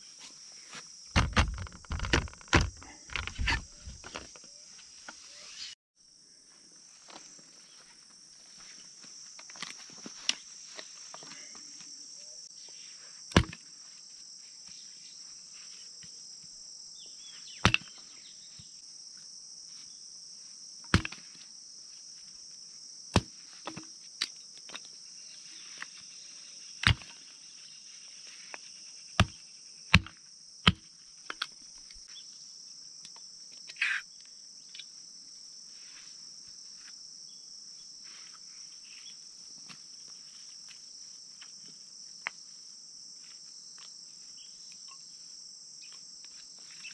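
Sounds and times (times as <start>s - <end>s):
insects chirring: 0.0s - 46.9s
hatchet splitting firewood: 1.1s - 4.0s, 13.3s - 13.6s, 17.6s - 17.9s, 20.9s - 21.2s, 26.8s - 27.1s, 29.2s - 31.4s.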